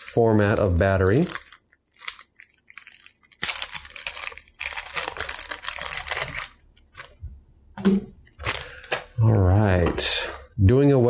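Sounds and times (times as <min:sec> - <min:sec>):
plastic bag crinkling: 0:00.0 - 0:07.2, 0:08.2 - 0:08.9.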